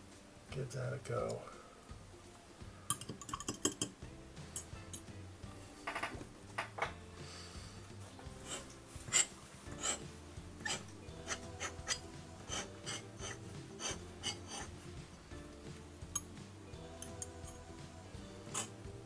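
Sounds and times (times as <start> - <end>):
pen nib scratching on paper: 8.4 - 14.8.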